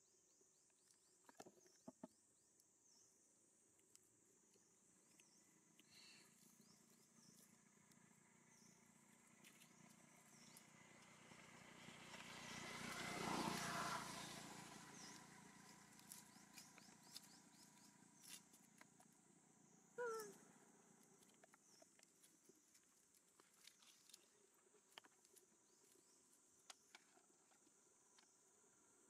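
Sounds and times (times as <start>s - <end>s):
distant vehicle passing: 8.4s - 18.2s
small high chirps: 19.9s - 22.3s.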